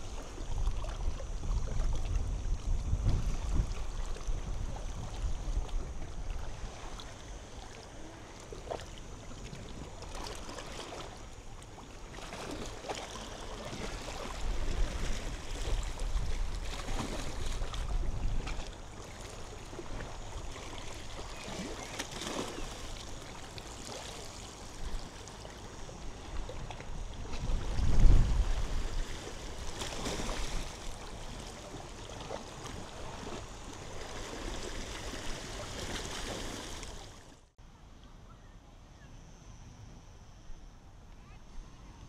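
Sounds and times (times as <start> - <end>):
wind buffeting microphone: 0.0 - 6.9, 13.8 - 18.7, 26.0 - 31.3
small waves washing onto sand: 0.0 - 37.4.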